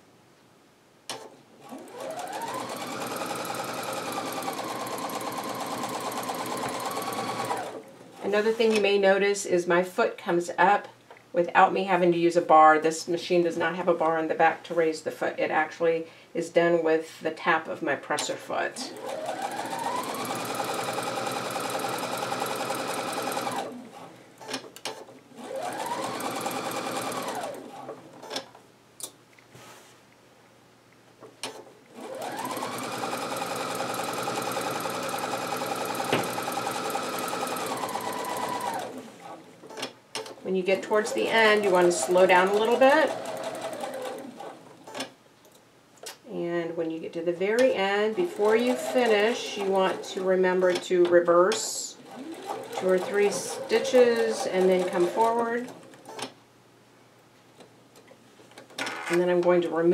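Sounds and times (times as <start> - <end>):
sewing machine stitching: 1.6 - 8.8, 18.9 - 28.5, 31.4 - 45.1, 47.6 - 50.9, 52.0 - 56.3.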